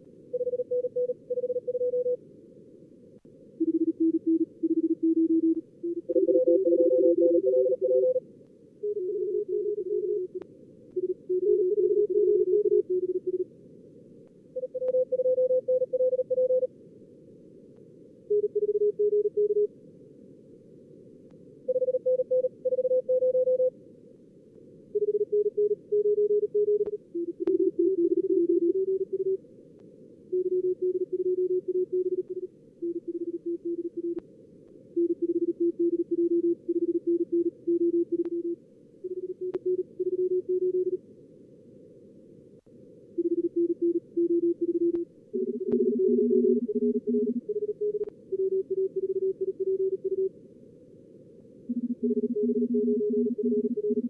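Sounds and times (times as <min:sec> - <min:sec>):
morse code tones: 0:03.6 - 0:08.2, 0:35.0 - 0:41.0, 0:43.2 - 0:50.3, 0:51.7 - 0:54.0.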